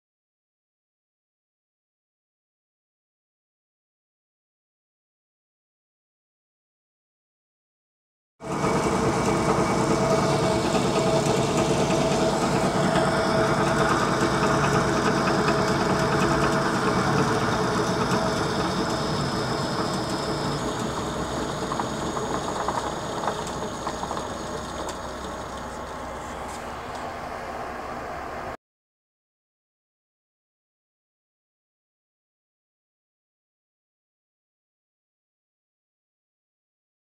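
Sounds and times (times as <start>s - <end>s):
metal lathe running: 8.4s - 28.6s.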